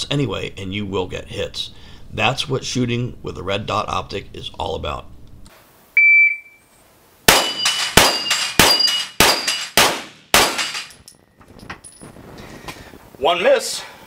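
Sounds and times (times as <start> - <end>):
steel plates ringing: 7.3 - 9.8
pistol shots: 7.3 - 11.0.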